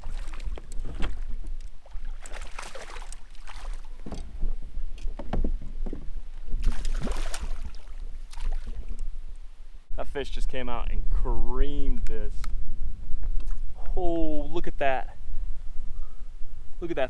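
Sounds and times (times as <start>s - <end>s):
water splashing around kayak: 0.0s - 9.1s.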